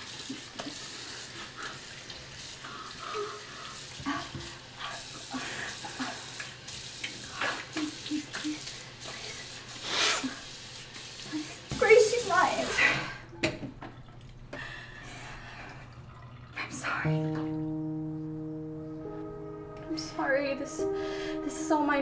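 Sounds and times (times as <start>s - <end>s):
tap water running into sink: 0.0s - 14.8s, 15.4s - 17.7s.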